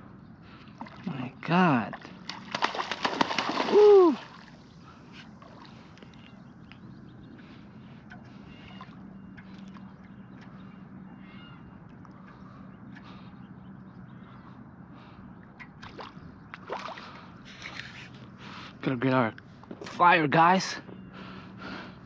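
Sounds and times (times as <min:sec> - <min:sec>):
steady low hum: 0:00.0 - 0:22.0
faint bird chirps: 0:03.9 - 0:16.6.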